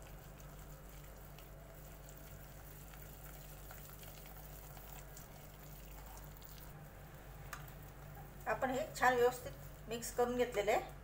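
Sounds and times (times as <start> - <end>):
wet squelching of marinade: 0.0 - 10.6.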